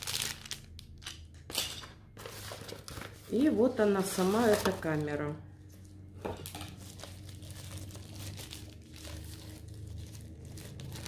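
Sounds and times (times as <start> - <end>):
packaging wrapper crinkling: 0.0 - 1.2, 6.4 - 11.0.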